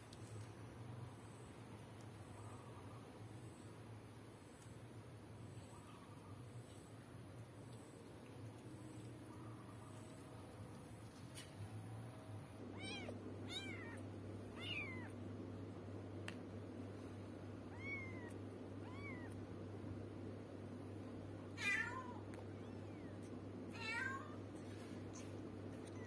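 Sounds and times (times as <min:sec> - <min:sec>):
kitten mewing: 0:12.7 - 0:15.2, 0:17.7 - 0:19.4.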